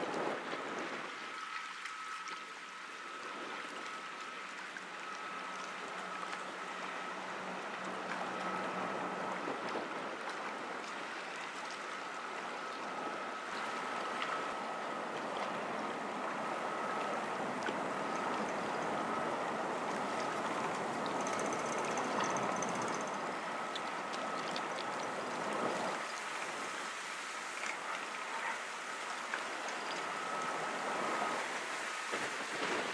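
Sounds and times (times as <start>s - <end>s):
faint high whine: 0.0s - 32.9s
river water rushing along hull: 0.0s - 32.9s.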